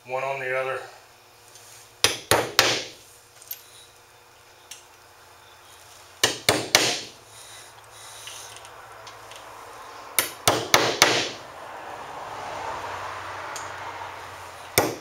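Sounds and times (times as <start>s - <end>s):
hammer tapping nails: 2.0s - 2.9s, 6.2s - 7.1s, 10.2s - 11.4s, 14.8s - 15.0s.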